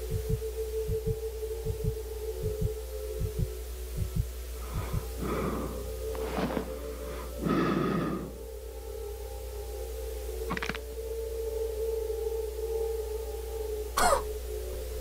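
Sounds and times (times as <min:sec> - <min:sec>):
heartbeat-like thumps: 0:00.0 - 0:06.7
low drone: 0:00.0 - 0:15.0
harsh breathy rasps: 0:04.6 - 0:08.4.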